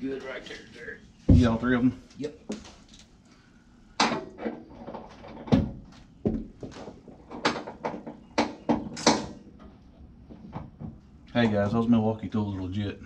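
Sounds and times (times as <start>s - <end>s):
metal frame knocks and clunks: 4.0s - 11.1s.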